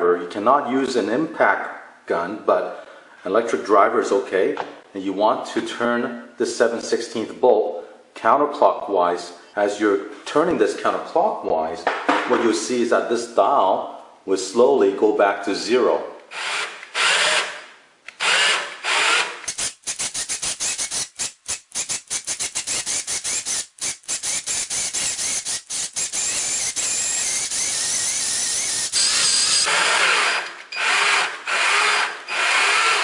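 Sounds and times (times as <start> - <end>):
electric drill motor running: 16.3 - 17.6, 18.2 - 19.5, 24.3 - 33.0.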